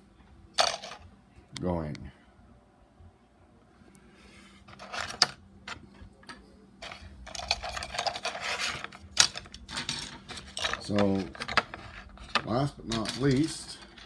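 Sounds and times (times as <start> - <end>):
plastic pieces scraping and clacking: 4.7 - 5.8, 6.8 - 14.0.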